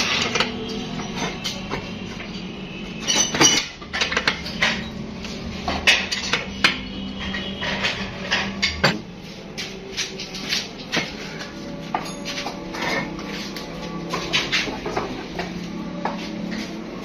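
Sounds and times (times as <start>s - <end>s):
metallic clinks and knocks: 11.8s - 13.4s.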